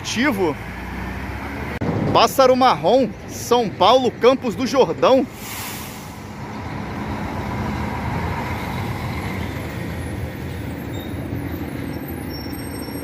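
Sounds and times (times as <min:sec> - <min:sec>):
traffic noise: 0:00.0 - 0:13.0
bus diesel engine running: 0:02.8 - 0:13.0.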